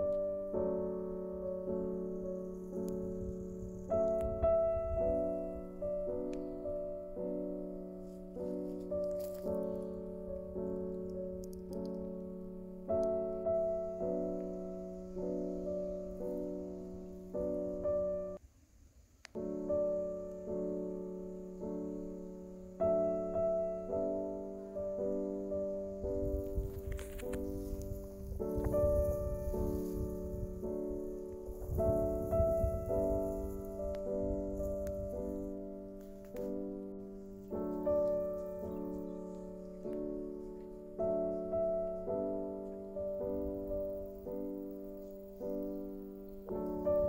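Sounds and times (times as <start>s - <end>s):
slow solo piano music: 0.0s - 18.4s, 19.4s - 47.0s
click: 10.9s - 12.1s.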